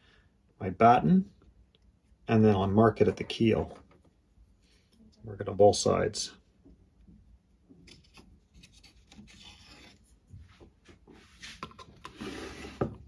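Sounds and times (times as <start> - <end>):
pencil scraping: 7.8 - 10.2, 11.2 - 13.0
pencil scratching on plastic: 11.2 - 13.0.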